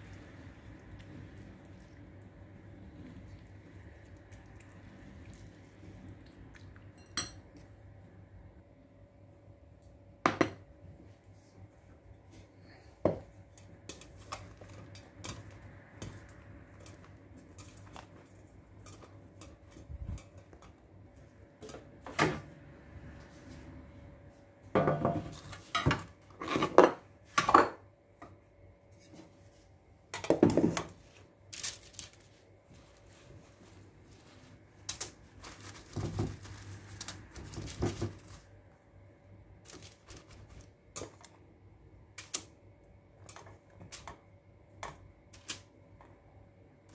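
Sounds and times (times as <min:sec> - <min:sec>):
baking paper rustling: 0:30.6 - 0:38.6, 0:39.6 - 0:41.3.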